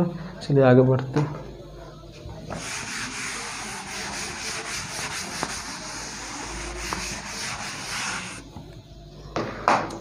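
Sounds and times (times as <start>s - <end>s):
duster rubbing writing board: 2.5s - 8.4s.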